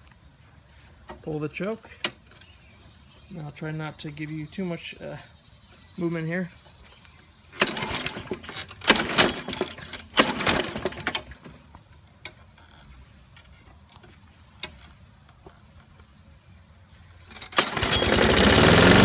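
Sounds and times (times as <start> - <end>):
recoil starter cord pulls: 7.5 - 11.6, 17.2 - 19.0.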